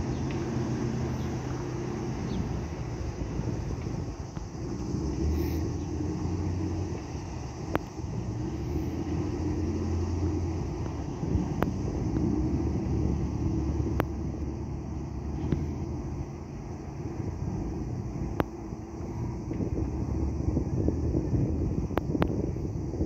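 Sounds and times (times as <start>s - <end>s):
boat engines rumbling: 0.0s - 23.0s.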